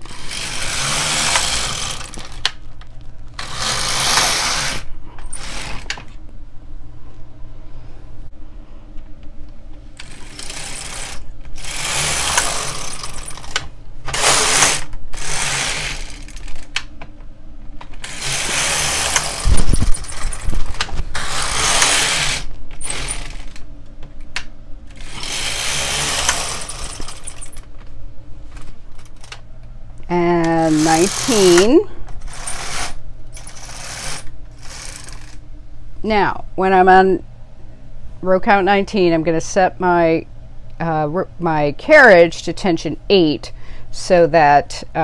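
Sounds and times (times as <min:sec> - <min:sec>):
knitting machine carriage clattering: 0:00.0 - 0:02.5, 0:10.0 - 0:16.8, 0:17.9 - 0:23.6, 0:24.9 - 0:27.7.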